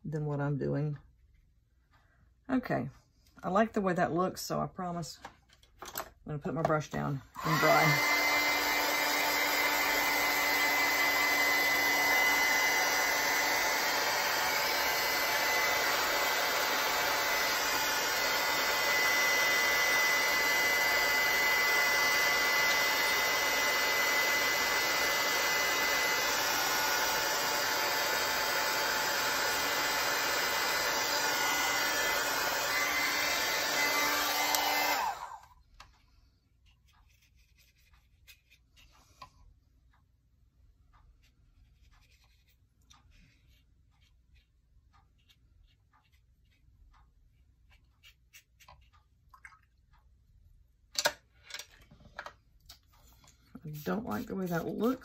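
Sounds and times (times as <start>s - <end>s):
heat tool blowing hot air: 7.4s - 35.4s.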